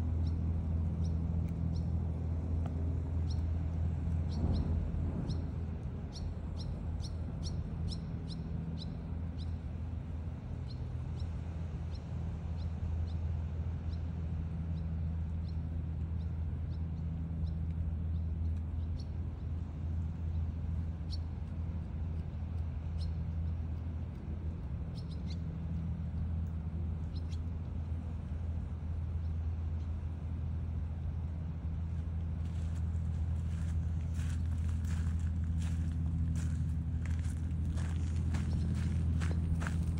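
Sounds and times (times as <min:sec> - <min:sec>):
low mechanical hum: 0:00.0 - 0:39.9.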